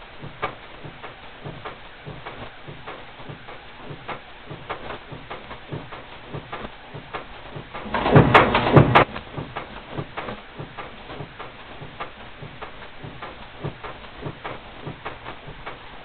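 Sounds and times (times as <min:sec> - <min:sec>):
heavy press strokes: 0:03.2 - 0:16.0
punch machine mechanism clicking: 0:07.7 - 0:12.1.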